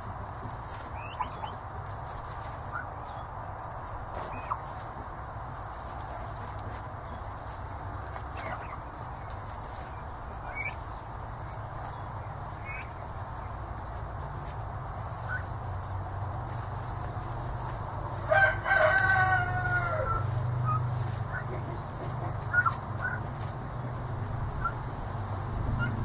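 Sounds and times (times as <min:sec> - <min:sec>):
young turkeys peeping: 0:00.0 - 0:26.0
drawn-out falling bird call: 0:00.8 - 0:01.6, 0:16.5 - 0:24.9.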